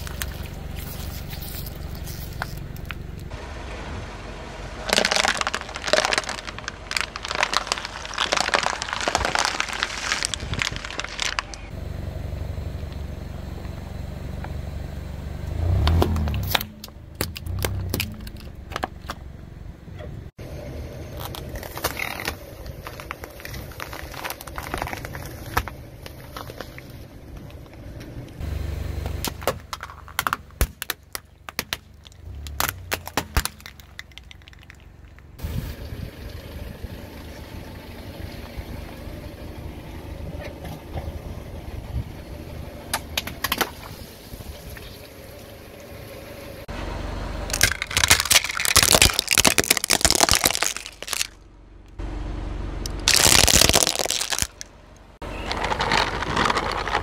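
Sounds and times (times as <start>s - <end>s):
plastic bottles crunching under tyre: 0.0s - 3.3s, 4.8s - 11.7s, 15.7s - 19.2s, 21.2s - 27.8s, 29.1s - 35.4s, 47.5s - 51.4s, 52.8s - 57.0s
car engine running low: 0.0s - 57.0s.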